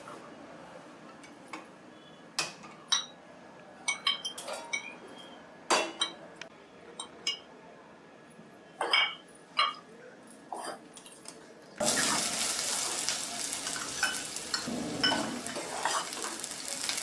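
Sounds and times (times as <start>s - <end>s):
metal pot clanking on stove: 13.9s - 16.2s.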